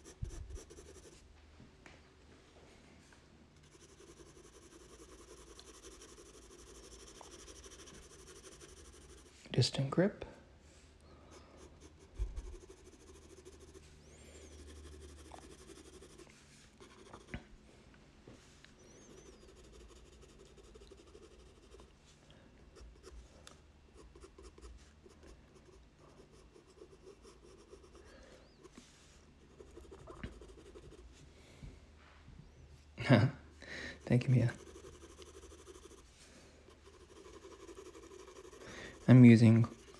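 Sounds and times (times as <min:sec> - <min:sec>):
pencil shading on paper: 0:00.0 - 0:01.2, 0:03.6 - 0:09.4, 0:11.6 - 0:17.4, 0:19.0 - 0:21.9, 0:24.0 - 0:28.0, 0:29.4 - 0:31.1, 0:34.5 - 0:39.9.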